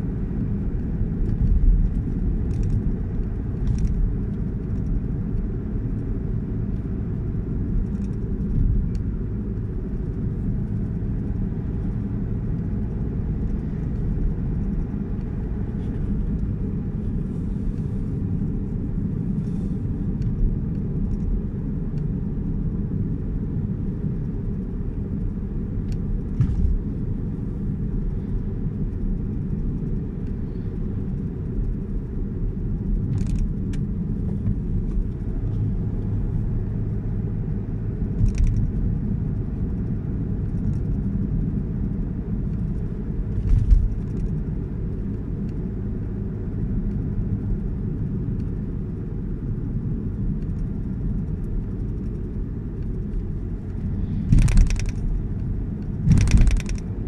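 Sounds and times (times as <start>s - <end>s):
car engine and tyres rumbling: 0.0s - 57.0s
knocks and rattles: 56.0s - 56.8s.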